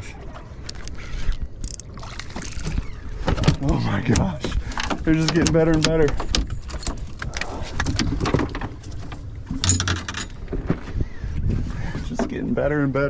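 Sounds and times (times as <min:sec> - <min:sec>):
clicks and knocks on boat: 0:02.3 - 0:10.9
wind rumble on microphone: 0:02.6 - 0:13.0.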